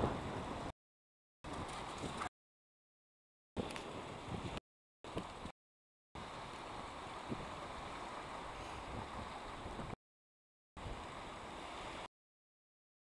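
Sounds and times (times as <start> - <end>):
wind rushing on microphone: 0.0 - 0.7, 1.5 - 2.3, 3.6 - 5.5, 6.2 - 10.0
small waves washing ashore: 3.6 - 5.5, 6.2 - 10.0, 10.8 - 12.1.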